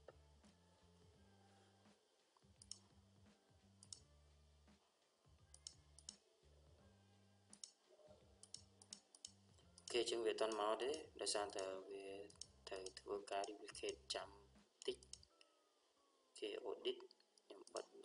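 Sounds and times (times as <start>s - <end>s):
faint low hum: 0.0s - 18.0s
computer mouse clicks: 2.6s - 2.8s, 3.8s - 4.0s, 5.5s - 6.2s, 7.5s - 7.8s, 8.4s - 11.7s, 14.8s - 15.3s.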